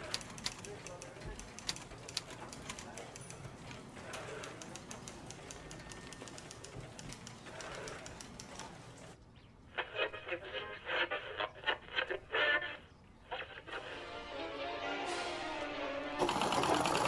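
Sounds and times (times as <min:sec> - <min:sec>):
typewriter clicks: 0:00.0 - 0:08.9.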